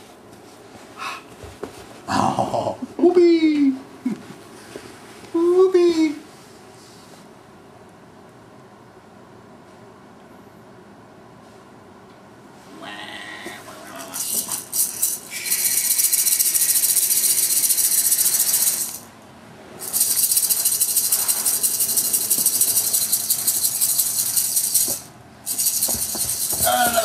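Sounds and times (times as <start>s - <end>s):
toy rattling: 13.9s - 19.1s, 19.8s - 27.0s.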